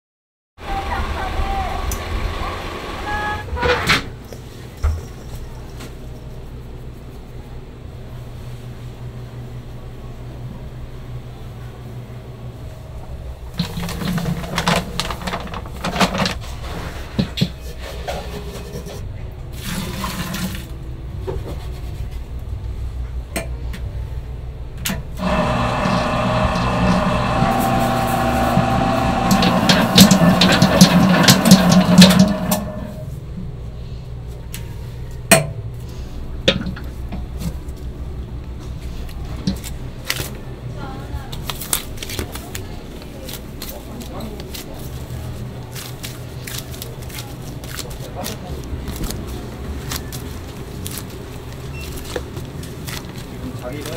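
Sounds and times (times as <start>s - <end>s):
knocks and rustles in metal bowl: 13.6s - 19.0s, 29.3s - 32.8s
dough mixer motor whine: 25.2s - 33.0s.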